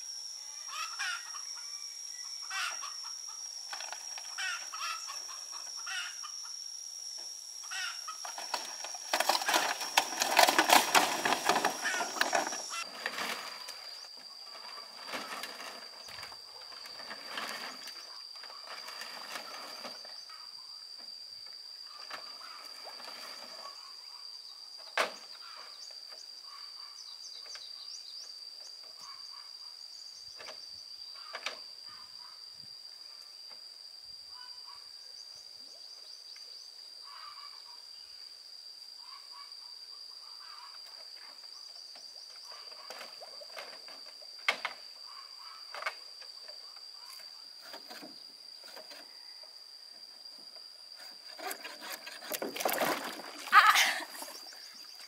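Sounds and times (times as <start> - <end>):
steady high-pitched drone: 0.0 - 12.9.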